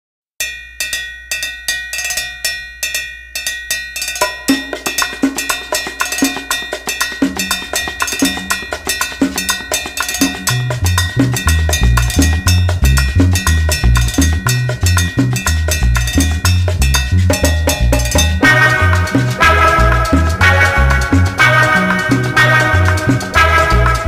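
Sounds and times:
drum and percussion beat: 2.9s - 24.0s
deep bass line: 10.2s - 24.0s.

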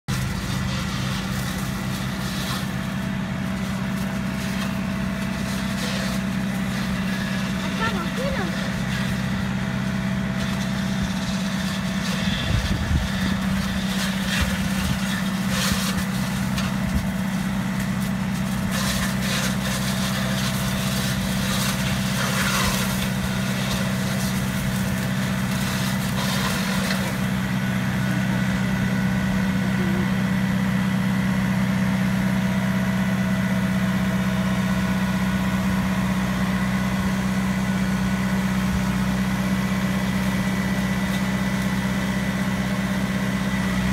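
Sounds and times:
tractor engine running: 0.0s - 43.9s
branches crackling: 0.1s - 31.4s.

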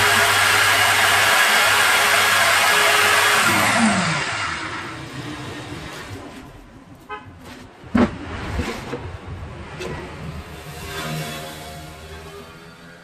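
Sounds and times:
circular saw winding down: 0.0s - 6.3s, 10.4s - 13.0s.

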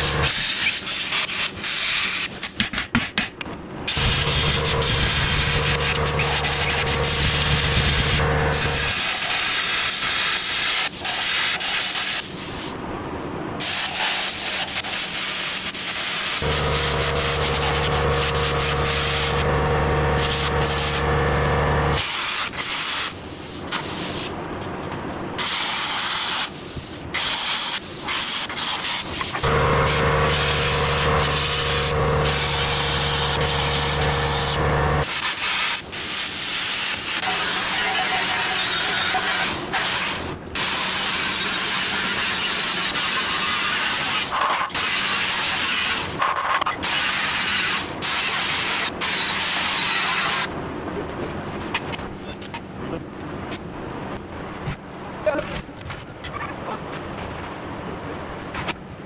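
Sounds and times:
steady low hum: 4.0s - 9.0s, 16.4s - 22.0s, 29.4s - 35.1s
angle grinder grinding on steel: 16.4s - 22.0s, 29.4s - 35.1s.

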